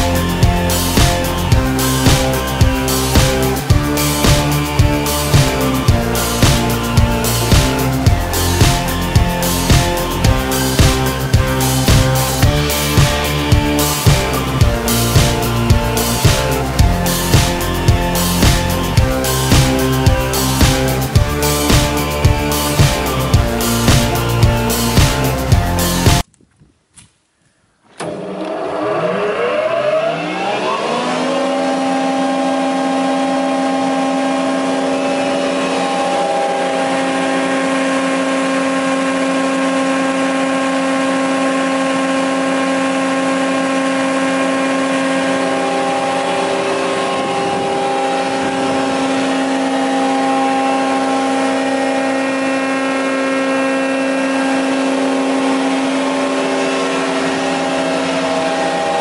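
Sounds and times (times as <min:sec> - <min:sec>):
jointer motor whining: 0:00.0 - 0:26.2, 0:27.9 - 0:59.0.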